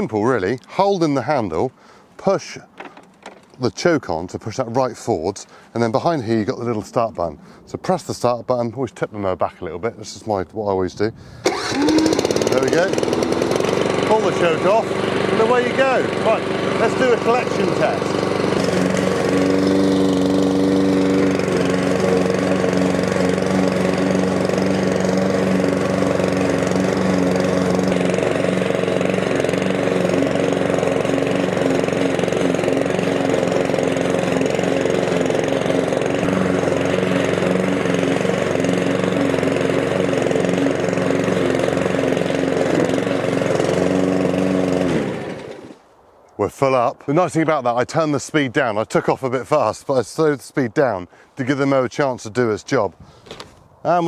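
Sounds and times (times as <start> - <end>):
lawn mower engine running: 2.7 - 3.6, 11.4 - 45.8
mower cutting grass: 11.4 - 45.9.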